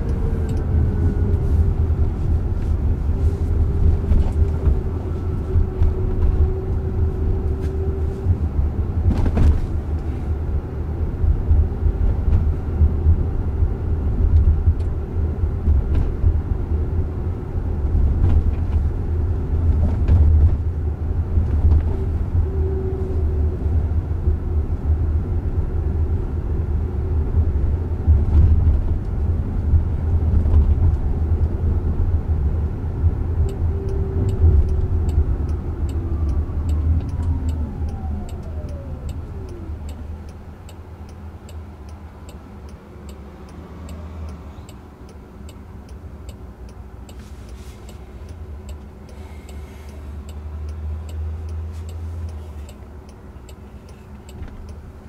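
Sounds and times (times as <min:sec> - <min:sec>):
turn signal ticking: 0:00.0 - 0:06.8, 0:33.0 - 0:55.0
road and tyre rumble: 0:00.0 - 0:55.0.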